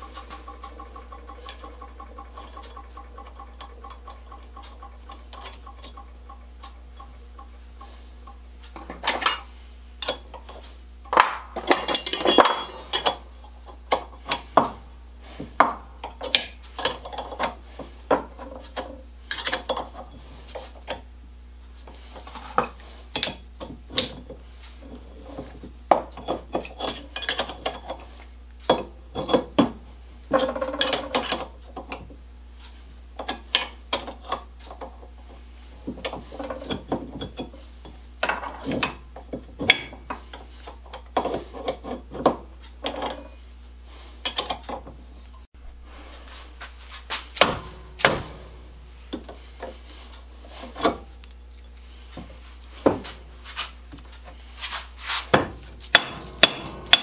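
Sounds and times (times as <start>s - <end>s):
tools picked up and set down: 8.8s - 10.3s, 11.1s - 13.5s
metal parts clinking and scraping: 8.8s - 14.6s, 16.1s - 17.5s, 18.4s - 20.7s, 26.2s - 29.5s, 53.5s - 57.0s.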